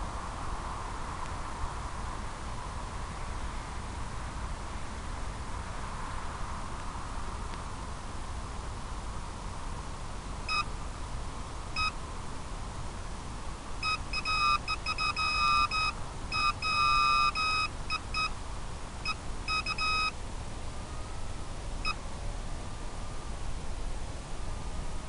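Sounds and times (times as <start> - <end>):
electronic beeper beeping: 13.8 - 18.3, 19.5 - 20.1.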